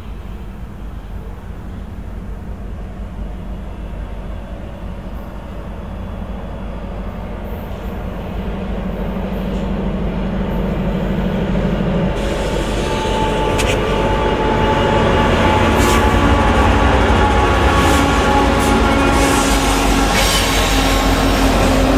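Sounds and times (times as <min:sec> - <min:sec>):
diesel locomotive engine rumble: 0:00.0 - 0:21.9
train rushing noise: 0:00.0 - 0:21.9.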